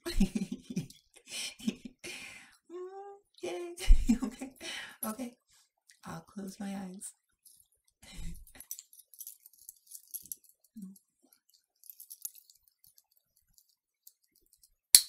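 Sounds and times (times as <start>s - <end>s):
collar metal clicks and jingling: 8.6s - 14.8s.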